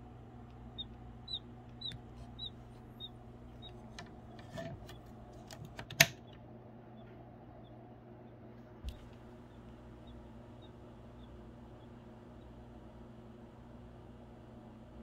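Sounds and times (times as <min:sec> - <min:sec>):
low steady hum: 0:00.0 - 0:15.0
high bird-like peeps: 0:00.6 - 0:03.9, 0:06.2 - 0:12.6.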